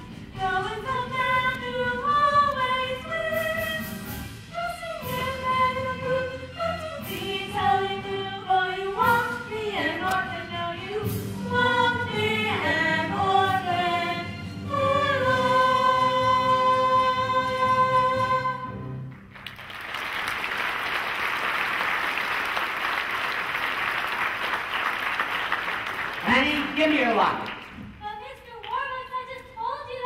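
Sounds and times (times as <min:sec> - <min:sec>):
chorus singing show tune: 0:00.0 - 0:18.9
musical accompaniment: 0:00.0 - 0:20.9.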